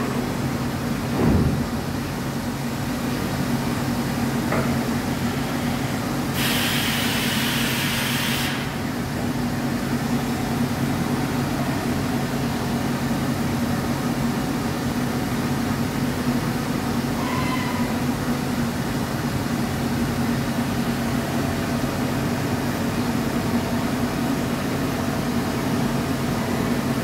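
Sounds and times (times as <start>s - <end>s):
pneumatic machinery humming: 4.4s - 8.9s
compressed air hissing: 6.3s - 8.8s.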